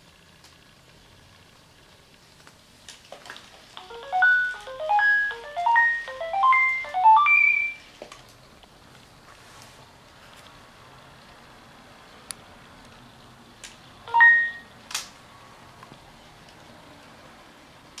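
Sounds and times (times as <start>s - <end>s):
robot dog beeping melody: 3.8s - 7.9s, 14.1s - 14.7s.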